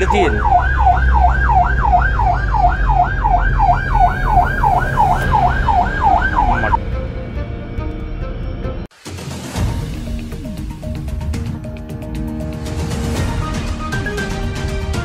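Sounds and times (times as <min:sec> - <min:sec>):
ambulance siren yelping: 0:00.0 - 0:06.8.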